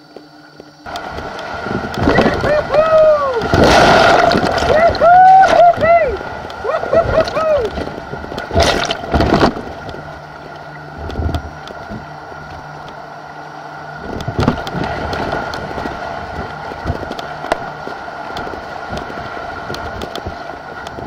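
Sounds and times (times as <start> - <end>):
waves splashing over camera: 0.1 - 21.0
white-water rapids rushing: 0.9 - 9.4.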